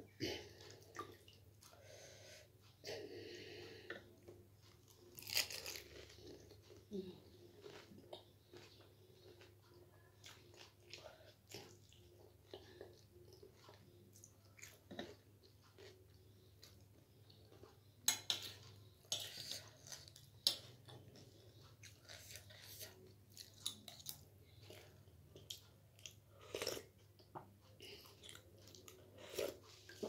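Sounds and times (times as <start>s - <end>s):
person chewing crunchy snack: 4.9s - 6.8s.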